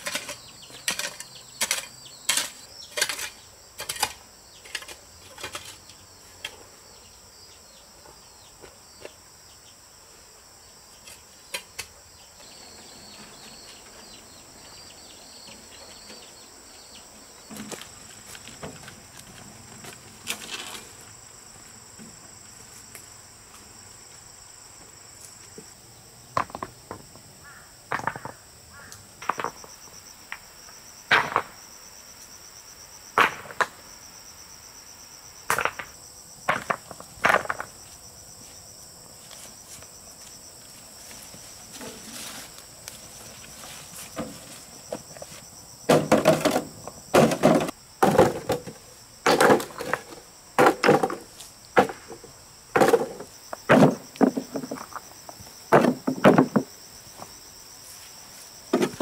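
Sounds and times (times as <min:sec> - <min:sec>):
crickets chirping: 0:00.0 - 0:59.0
sharp knocks and thuds: 0:45.9 - 0:55.0, 0:55.7 - 0:56.7, 0:58.7 - 0:59.0.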